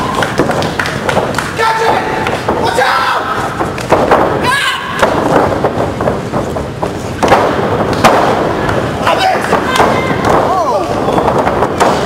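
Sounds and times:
person shouting: 4.4 - 5.0.

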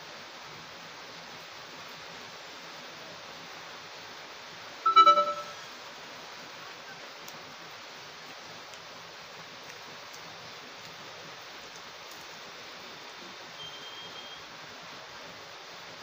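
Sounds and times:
heavy rain hissing: 0.0 - 4.8, 5.8 - 16.0
electronic beeping tones: 4.9 - 5.6.

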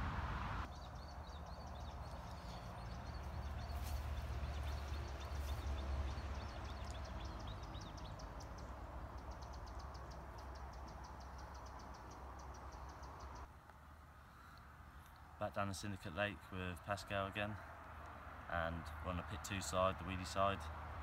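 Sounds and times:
small birds chirping: 0.6 - 13.5.

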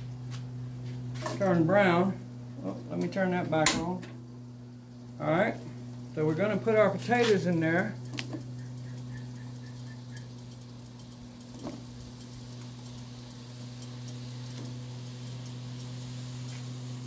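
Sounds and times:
potato slices sizzling in oil: 8.0 - 17.0.

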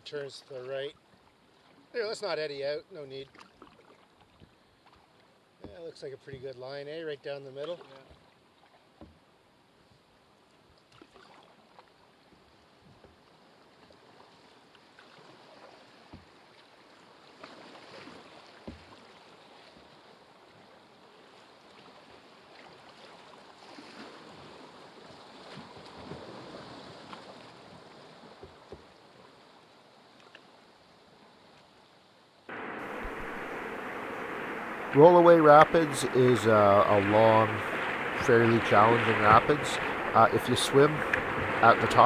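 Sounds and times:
river rapids rushing: 32.5 - 42.0.

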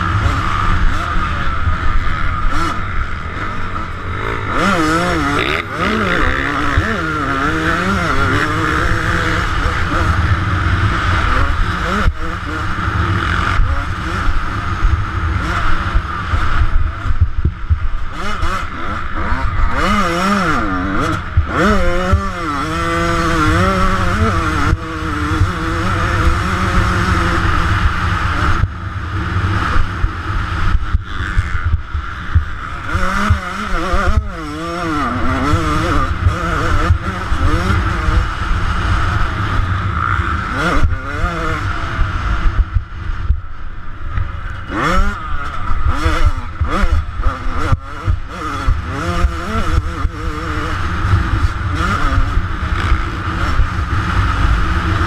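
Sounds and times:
two-stroke engine revving: 0.0 - 43.3, 44.4 - 55.0
wind rumbling on microphone: 20.9 - 55.0.

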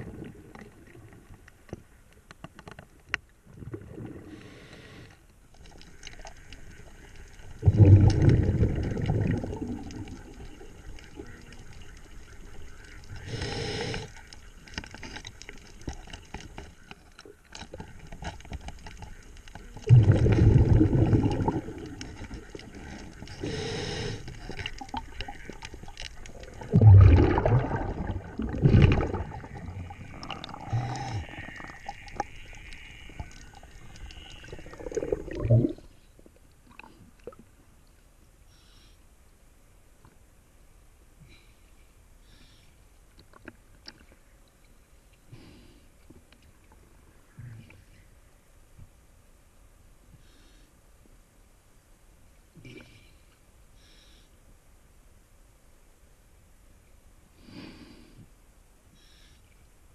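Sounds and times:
exhaled bubbles rumbling: 0.0 - 1.4, 3.4 - 4.6, 6.2 - 13.9, 19.6 - 23.6, 24.2 - 35.9
hissing regulator inhalations: 13.2 - 14.2, 22.9 - 24.7.

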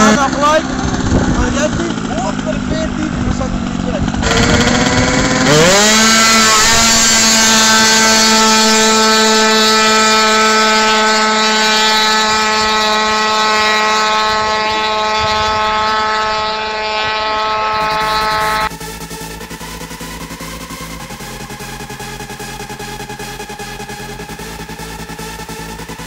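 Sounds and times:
scooter engine revving: 0.0 - 26.0.

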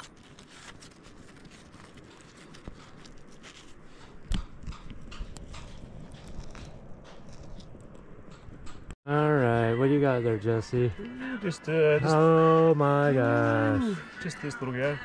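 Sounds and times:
stones clicking and scraping: 0.0 - 8.8.

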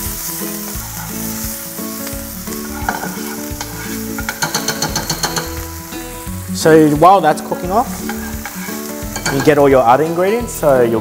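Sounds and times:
background music with held notes: 0.0 - 11.0
paste sizzling in frying pan: 0.0 - 11.0
metal spoon scraping pan: 2.6 - 5.5, 7.8 - 10.5.

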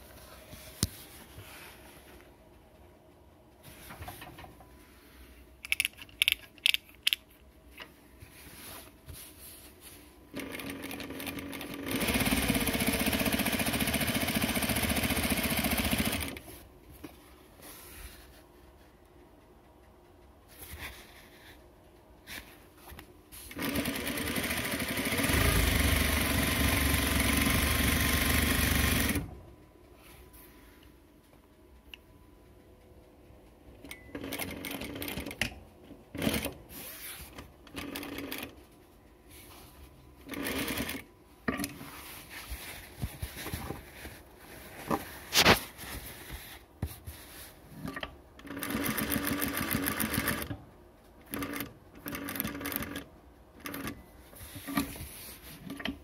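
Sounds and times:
sewing machine stitching: 10.3 - 16.4, 23.4 - 29.3, 40.2 - 41.1, 47.8 - 50.5.

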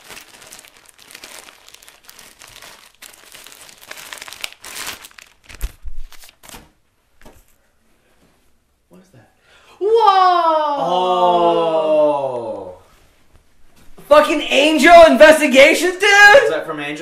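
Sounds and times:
plastic bag crinkling: 0.0 - 6.6.

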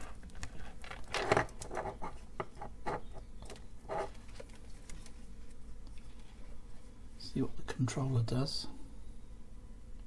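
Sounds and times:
light clicks and rustles: 3.4 - 6.4.

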